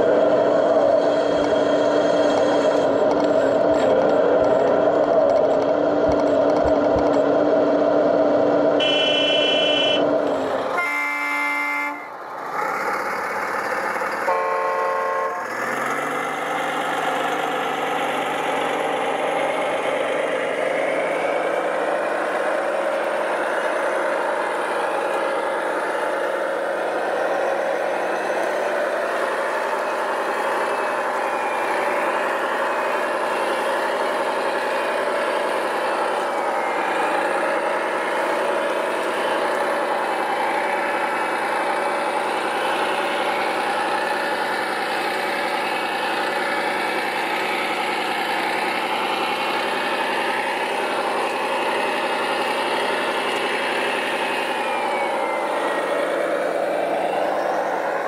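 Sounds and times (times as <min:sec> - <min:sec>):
hydraulic pump whine: 0:00.0 - 0:11.2, 0:24.2 - 0:58.0
engine-like drone: 0:00.0 - 0:58.0
horn toots: 0:08.8 - 0:10.1, 0:10.7 - 0:12.2, 0:14.2 - 0:15.5.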